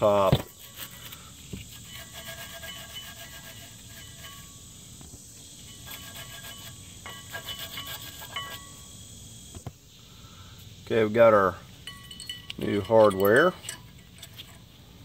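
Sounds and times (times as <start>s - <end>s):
wire brush scrubbing metal: 0.4s - 4.9s, 5.6s - 8.8s.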